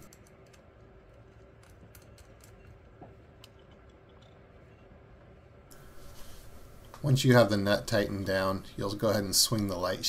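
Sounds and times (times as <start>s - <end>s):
plastic parts clicking: 0.0s - 4.4s
low steady hum: 0.0s - 10.0s.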